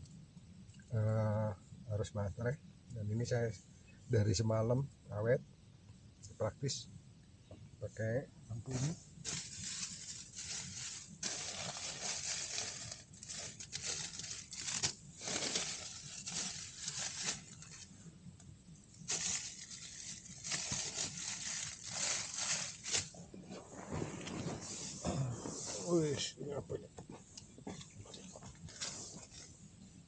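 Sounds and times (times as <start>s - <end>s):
material rustling and crinkling: 8.7s - 18.0s, 18.9s - 26.4s, 27.2s - 30.0s.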